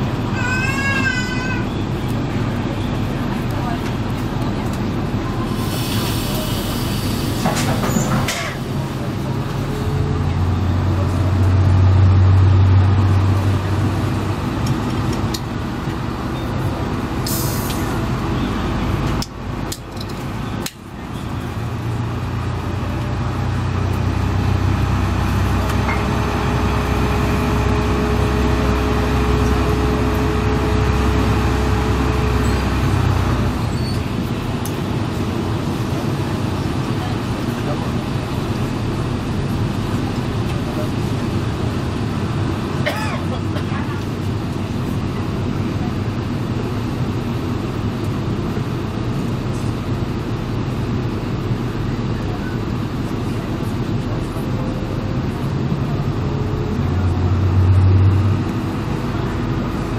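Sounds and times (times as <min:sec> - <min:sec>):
train diesel engine working: 0:00.0 - 0:59.9
air hisses: 0:05.5 - 0:07.4.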